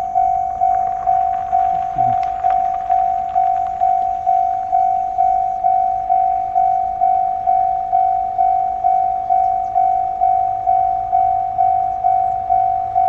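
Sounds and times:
level-crossing warning bell: 0.0s - 13.0s.

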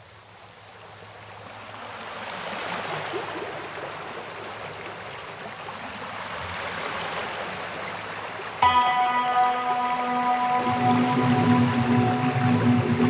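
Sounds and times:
steady rushing noise: 10.5s - 13.0s.

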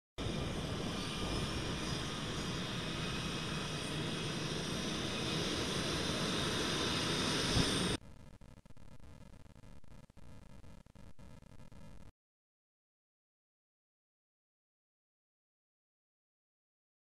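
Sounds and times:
jet engines whining: 0.2s - 8.0s.

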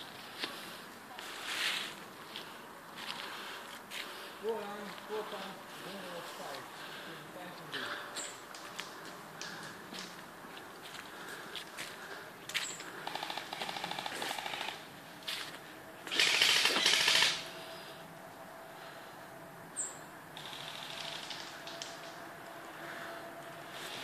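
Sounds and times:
airsoft guns firing bursts: 13.0s - 14.8s, 16.1s - 17.5s.

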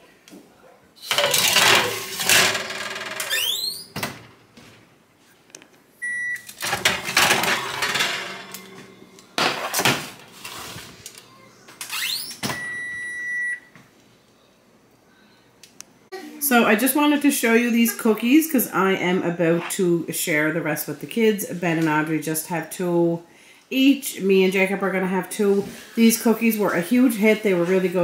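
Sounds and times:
cookie sheet clattering on oven racks: 1.1s - 3.2s, 6.6s - 10.8s
short rising squeak: 3.2s - 3.9s
electronic oven beep: 6.0s - 6.5s, 12.1s - 13.7s.

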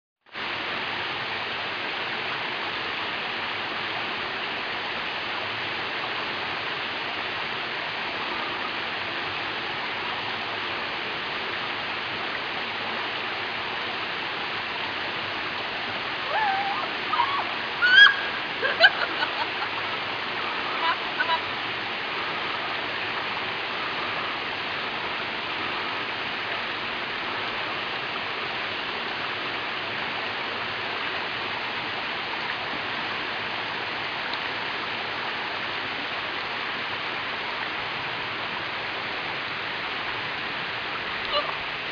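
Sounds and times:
water rushing over rocks: 0.3s - 41.9s
person calling out: 16.3s - 18.1s, 41.3s - 41.6s.

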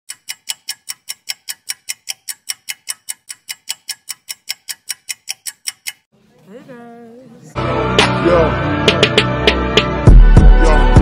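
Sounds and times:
rapid regular ticking: 0.1s - 6.1s.

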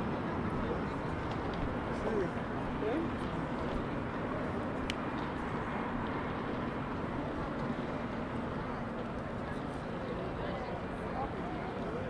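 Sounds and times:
city street ambience: 0.0s - 12.0s
faint traffic hum: 0.0s - 12.0s.

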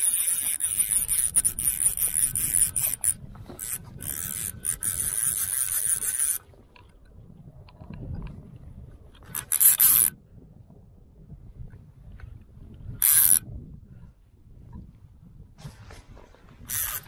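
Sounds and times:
fishing reel drag buzzing: 0.0s - 6.6s, 9.2s - 10.2s, 13.0s - 13.4s, 16.6s - 17.0s.

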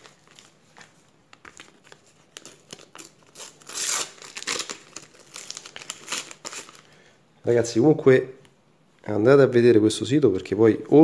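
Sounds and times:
paper stickers crinkling: 0.0s - 6.9s.

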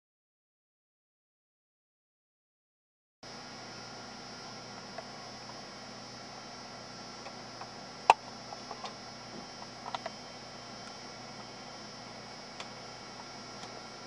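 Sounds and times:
electrical hum: 3.2s - 14.0s.

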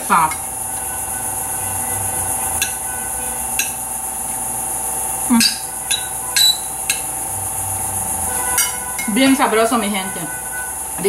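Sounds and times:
steady high hiss: 0.0s - 11.0s
cutlery scraping on a plate: 5.4s - 7.0s, 8.6s - 9.2s.

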